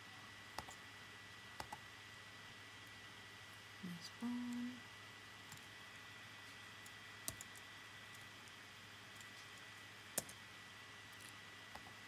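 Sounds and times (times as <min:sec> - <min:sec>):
faint background hum: 0:00.0 - 0:12.0
laptop keystrokes: 0:07.2 - 0:07.6, 0:10.2 - 0:10.4.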